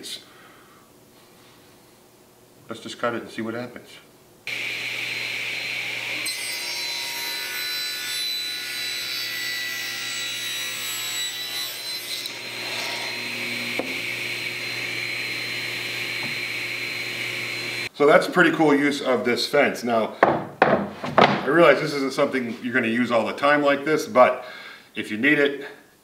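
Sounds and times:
saw blade cutting board: 4.5s - 17.9s
table saw running: 4.5s - 17.9s.

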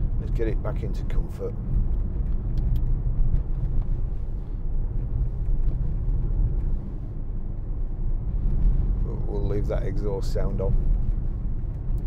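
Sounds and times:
car engine droning: 0.0s - 12.0s
road noise: 0.0s - 12.0s.

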